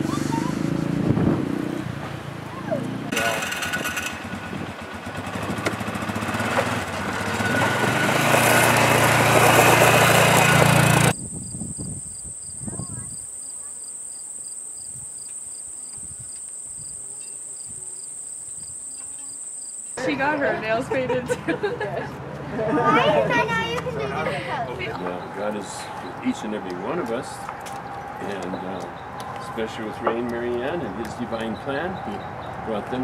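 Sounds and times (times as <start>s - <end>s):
utility vehicle engine running: 0.0s - 11.2s
insects droning: 11.1s - 20.0s
pulsing insect chirp: 11.1s - 20.0s.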